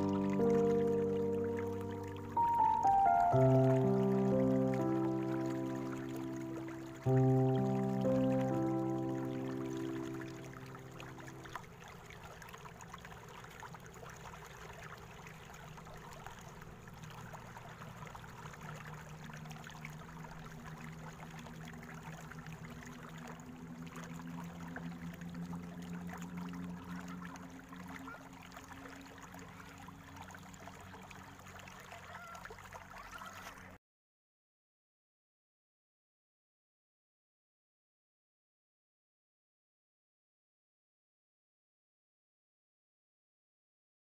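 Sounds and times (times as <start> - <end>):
low steady hum: 0.0 - 31.9
shallow stream trickling: 0.0 - 33.8.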